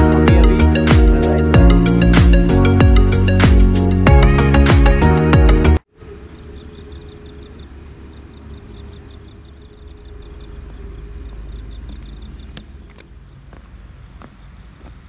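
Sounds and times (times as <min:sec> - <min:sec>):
high chirping: 0:00.0 - 0:13.4
footsteps on track stones: 0:11.9 - 0:15.0.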